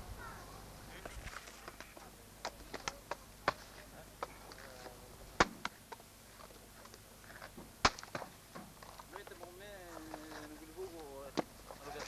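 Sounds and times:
faint voices: 0.0s - 12.0s
knocks of coconuts being split: 1.2s - 10.4s.

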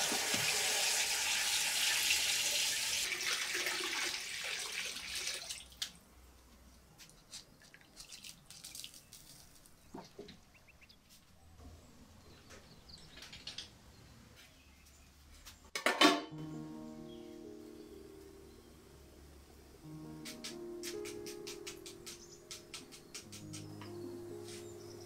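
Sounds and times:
loud dish clatter: 15.8s - 16.3s
soft instrumental music: 16.2s - 25.0s.

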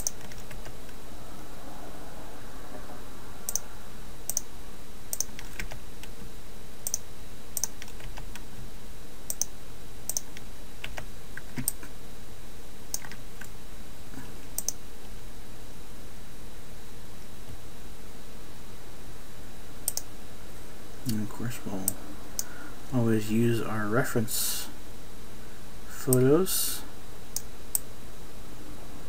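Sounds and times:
steady background hiss: 0.0s - 29.0s
mouse and keyboard clicks: 5.2s - 5.8s.

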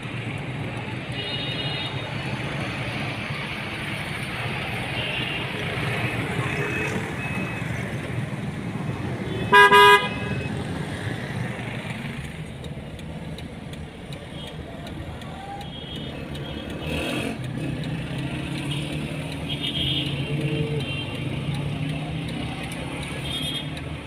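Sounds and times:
road traffic: 0.0s - 24.0s
vehicle horn honks: 9.3s - 10.5s.

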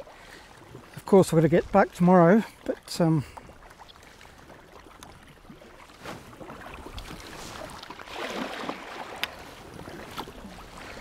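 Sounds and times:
paddles splashing: 0.0s - 11.0s
rush of water: 0.0s - 11.0s
water slapping hull: 0.0s - 11.0s.

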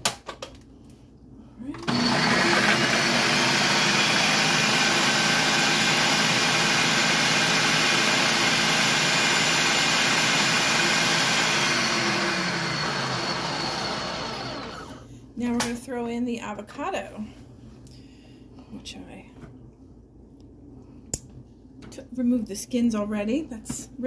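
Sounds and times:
food processor whirring: 1.8s - 15.0s.

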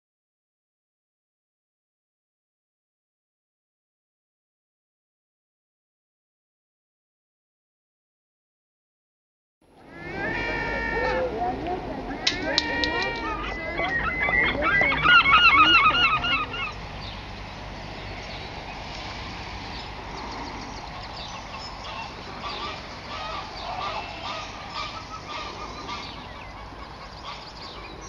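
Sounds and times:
gulls calling: 9.8s - 28.0s.

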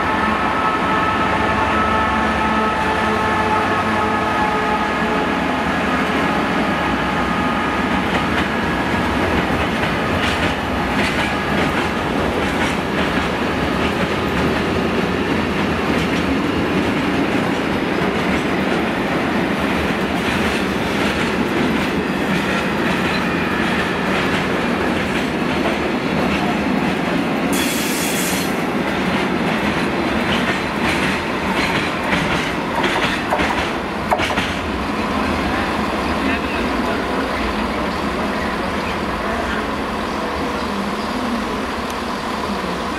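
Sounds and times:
diesel locomotive engine: 0.0s - 42.9s
freight train wheels rumbling: 0.0s - 42.9s
brief hiss: 27.6s - 28.6s.

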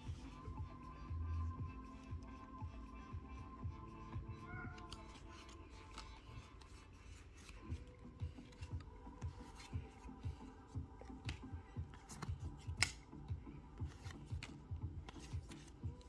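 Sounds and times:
trading cards sliding in a stack: 4.8s - 13.2s, 13.8s - 16.0s
sharp card snap: 12.1s - 13.1s.

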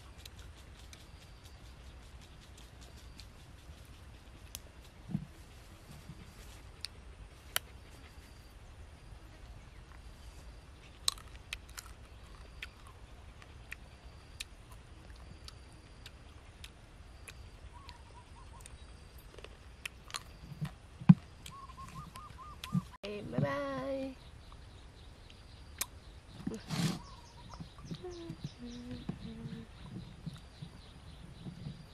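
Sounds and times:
faint bird chirps: 12.1s - 20.7s, 21.3s - 31.9s
fruit skins peeling clicks: 25.3s - 26.0s.

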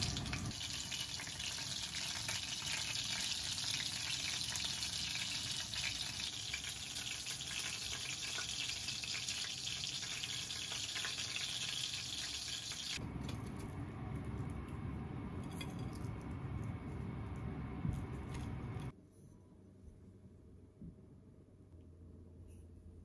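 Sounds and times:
hot oil sizzling and crackling: 0.0s - 13.1s.

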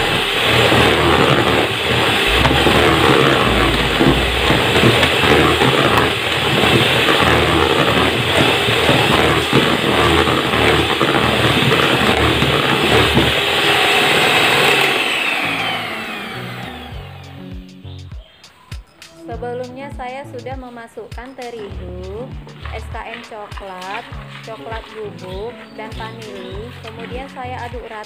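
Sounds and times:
electric hand mixer whining: 0.0s - 17.6s.

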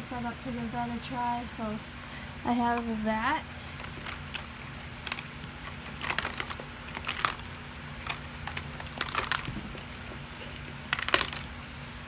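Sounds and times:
plastic makeup cases clicking: 3.8s - 11.5s.

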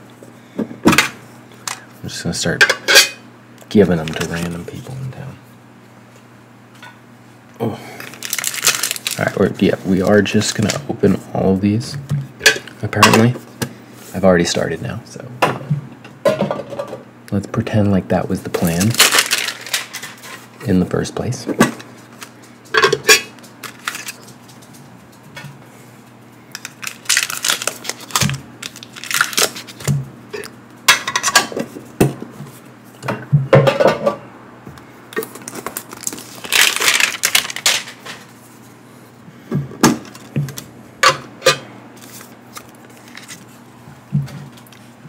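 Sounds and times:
plastic and foil rustling: 3.8s - 4.9s, 8.0s - 10.8s, 18.6s - 20.5s, 23.1s - 24.8s, 26.5s - 29.9s, 35.2s - 38.6s, 42.0s - 43.6s.

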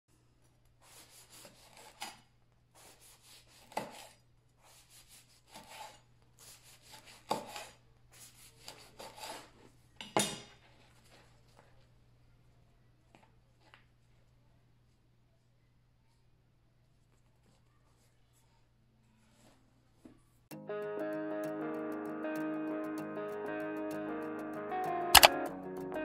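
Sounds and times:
knife sawing through bread crust: 0.8s - 9.6s.

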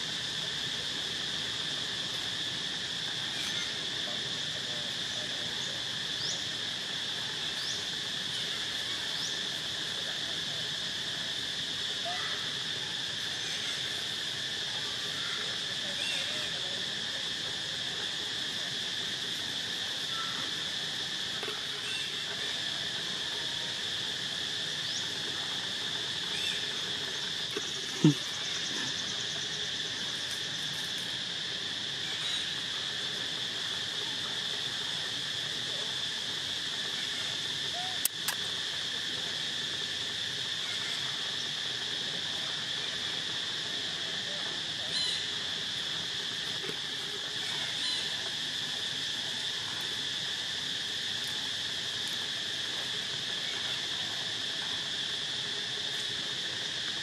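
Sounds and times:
insect chorus: 0.0s - 57.0s
sharp click: 38.0s - 38.5s.

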